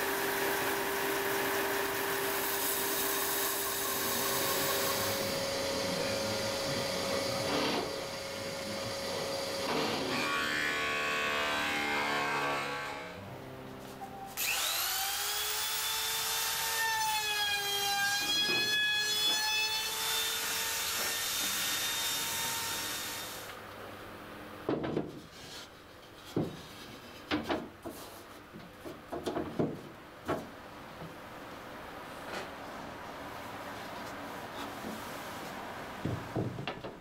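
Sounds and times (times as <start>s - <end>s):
wooden knocks of floorboards: 28.8s - 30.5s, 36.0s - 37.0s.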